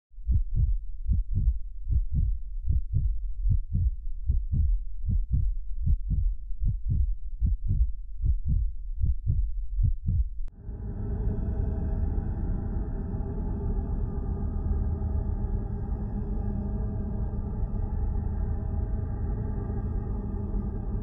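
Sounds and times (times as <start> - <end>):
heartbeat thumps: 0.2 - 10.5
steady low rumble: 0.2 - 21.0.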